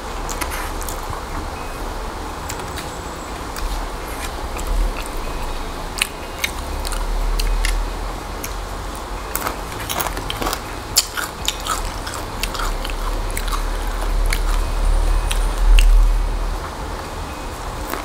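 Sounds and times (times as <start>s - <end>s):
chewing crispy food: 2.4s - 18.0s.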